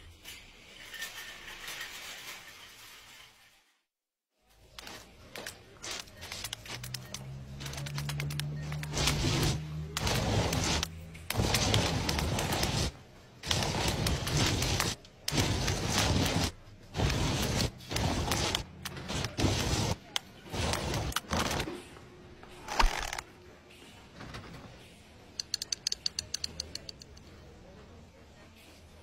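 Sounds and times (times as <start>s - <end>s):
rough noisy bursts: 5.8s - 21.7s
sharp click: 25.4s - 27.2s.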